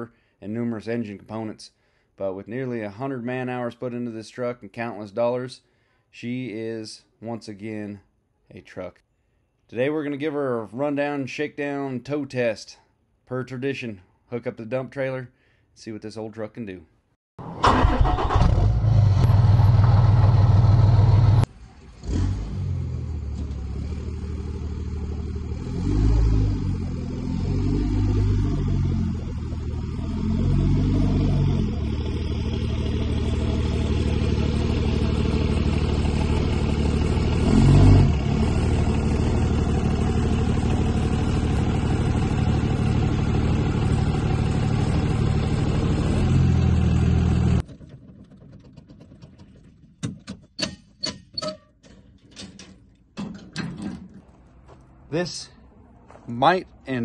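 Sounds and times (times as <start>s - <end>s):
diesel truck engine running: 17.4s - 21.5s, 22.8s - 47.6s
loud low drone: 24.1s - 47.6s.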